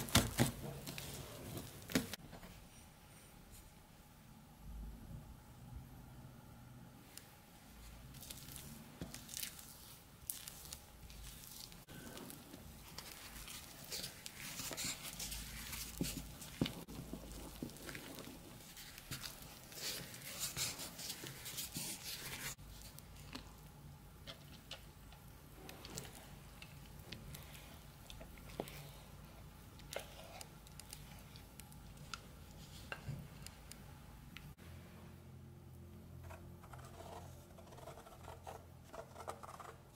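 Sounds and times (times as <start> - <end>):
spoon stirring thick batter: 8.2 - 33.7.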